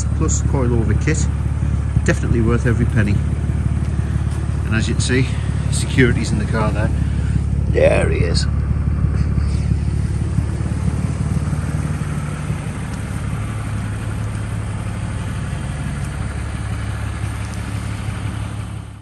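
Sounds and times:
car engine idling: 0.0 - 19.0.

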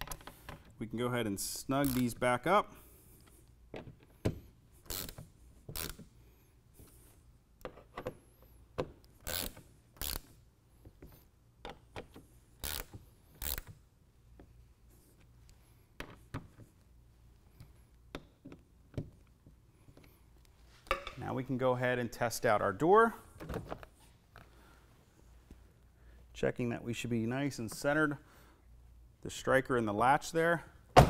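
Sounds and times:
hand ratchet clicking: 1.8 - 2.1, 4.8 - 6.0, 9.2 - 10.4, 12.6 - 13.8.

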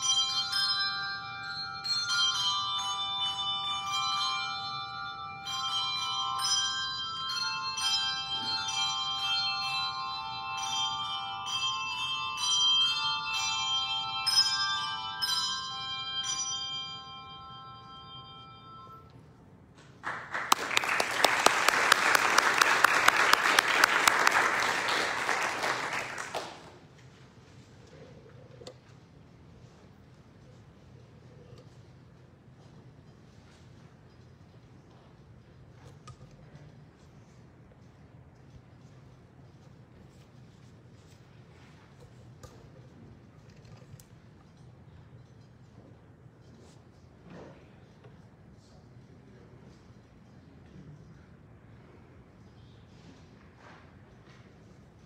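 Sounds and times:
handbell choir melody: 0.0 - 19.4
people applauding: 19.9 - 26.9.

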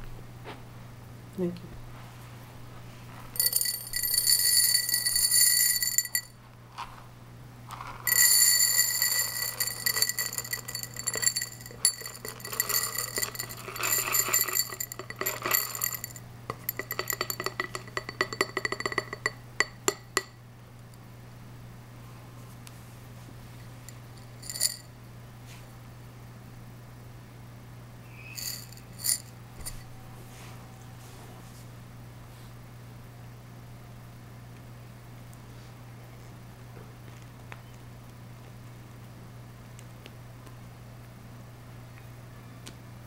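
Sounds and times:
beads pouring into glass cup: 3.4 - 6.3, 7.7 - 20.0, 24.4 - 24.8, 28.4 - 29.8
glass ringing: 3.4 - 6.3, 8.1 - 20.3, 24.4 - 24.8, 28.4 - 29.8.

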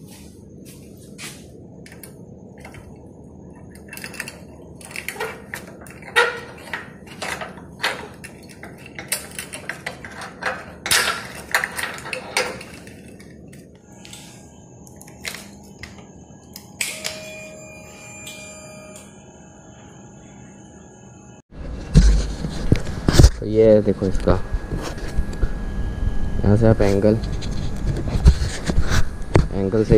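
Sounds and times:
padlock unlocking with key: 3.7 - 13.4.

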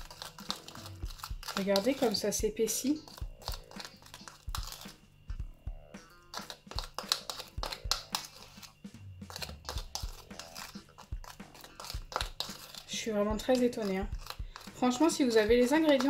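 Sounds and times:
slime squelching and clicking: 0.0 - 2.3, 2.9 - 5.0, 6.3 - 8.7, 9.3 - 16.0
soft background music: 0.0 - 16.0.

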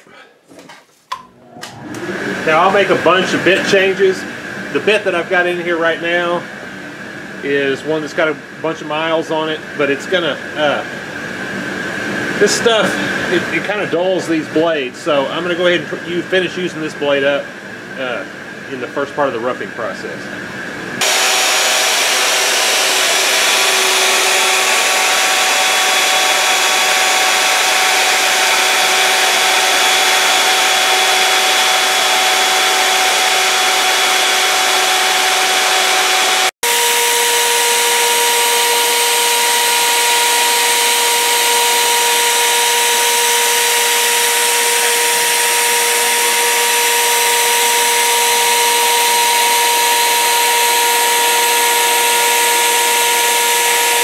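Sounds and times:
router whine: 1.4 - 8.3, 21.0 - 54.0
router cutting wood: 1.6 - 6.3, 21.0 - 54.0.

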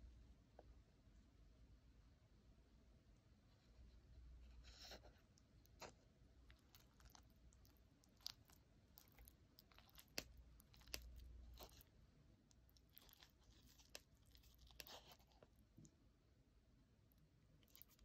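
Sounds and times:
person chewing and crunching food: 5.3 - 15.9, 17.1 - 18.0.

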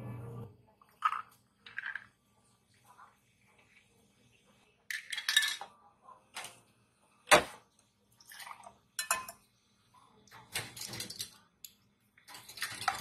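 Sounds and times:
glassware clinking on metal tray: 9.0 - 9.4.

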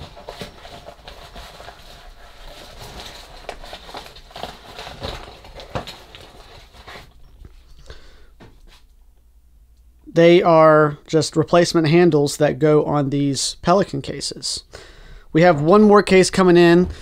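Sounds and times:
plastic mailer crinkling: 0.0 - 7.7.

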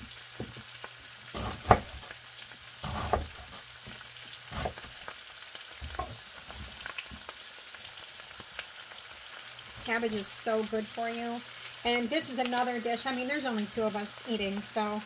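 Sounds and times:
food sizzling in a pan: 0.0 - 15.0
knife chopping on wooden board: 1.4 - 2.1, 2.8 - 3.6, 4.5 - 5.0, 5.8 - 6.8.

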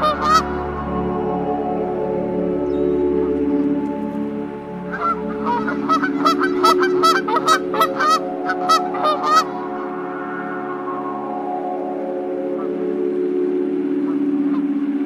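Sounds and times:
geese honking: 0.0 - 0.6, 4.9 - 9.9
droning music: 0.0 - 15.0.

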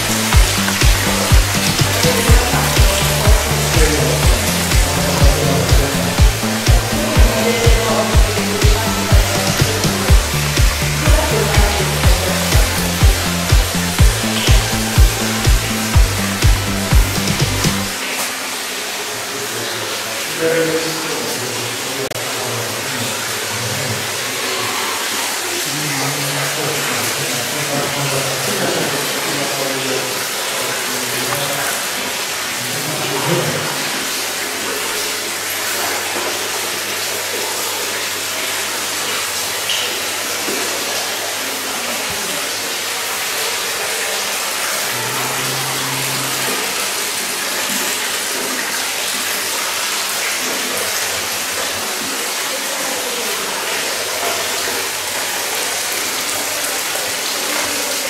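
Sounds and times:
faint voices: 0.0 - 38.8, 39.9 - 49.6
running water: 0.0 - 58.0.

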